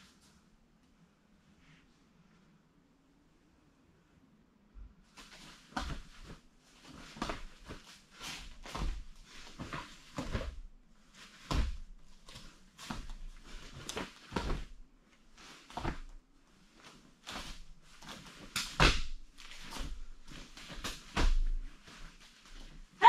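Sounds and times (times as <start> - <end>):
bare feet thudding on foam mats: 5.2 - 6.4, 7.0 - 14.8, 15.5 - 16.2, 17.2 - 22.8
uniform fabric snapping: 18.0 - 20.0.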